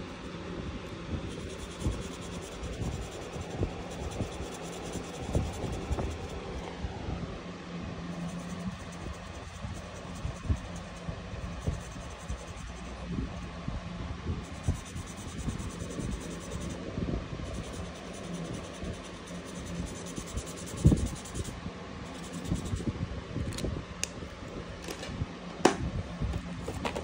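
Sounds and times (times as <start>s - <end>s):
low hum: 0.0s - 27.0s
marker tapping and rubbing on paper: 25.7s - 27.0s.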